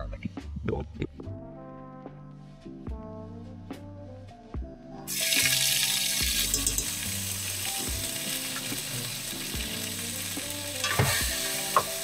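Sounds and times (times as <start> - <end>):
background music: 0.0 - 12.0
food sizzling in hot oil: 5.1 - 12.0.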